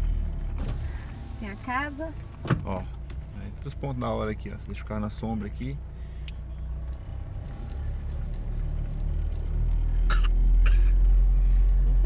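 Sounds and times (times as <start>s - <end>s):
car rumbling over rough track: 0.0s - 12.0s
person coughing: 10.1s - 11.0s.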